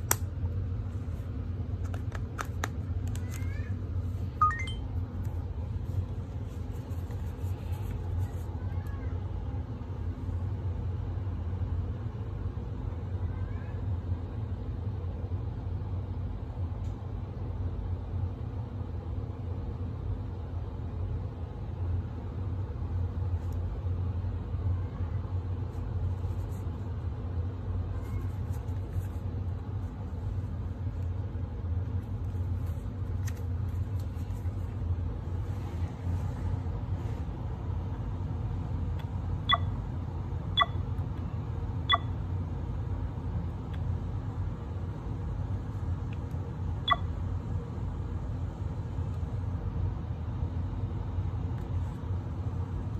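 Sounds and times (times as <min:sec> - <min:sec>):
short electronic beeps: 0:04.4 - 0:04.8, 0:39.5 - 0:39.7, 0:40.6 - 0:40.8, 0:41.9 - 0:42.1.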